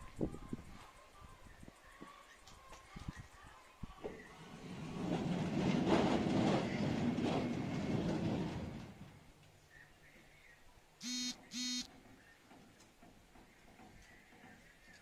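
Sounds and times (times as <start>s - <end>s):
sliding gate rumbling along track: 4.3s - 9.3s
short electronic beep: 11.0s - 11.9s.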